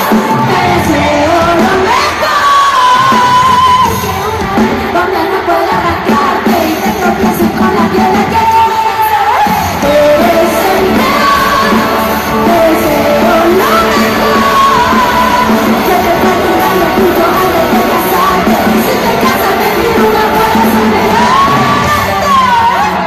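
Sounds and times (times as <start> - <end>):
live band music: 0.0 - 23.0
person singing lead: 0.0 - 23.0
crowd shouting along: 9.4 - 23.0.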